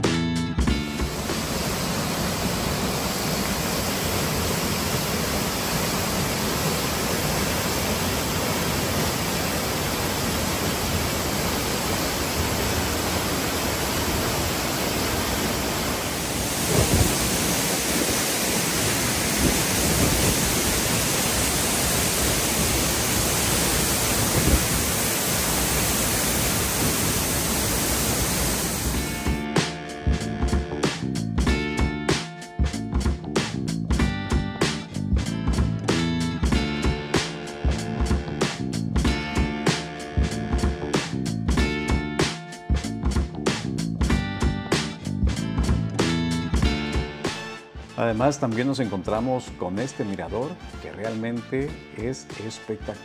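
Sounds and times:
waterfall rushing: 1.0 - 29.4.

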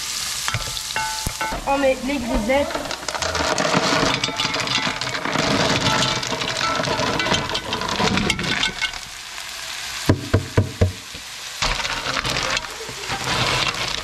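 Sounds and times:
clams sizzling in fat: 0.0 - 14.0
wooden spatula scraping: 0.5 - 8.8, 11.6 - 14.0
clam shells clattering into pan: 0.5 - 9.2, 10.0 - 14.0.

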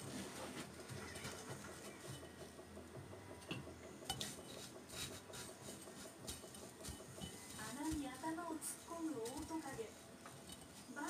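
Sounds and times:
crumbly rustling of breadcrumbs: 4.2 - 11.0.

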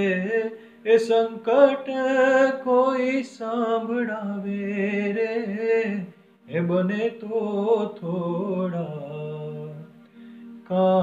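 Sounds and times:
man singing folk song: 0.0 - 9.9.

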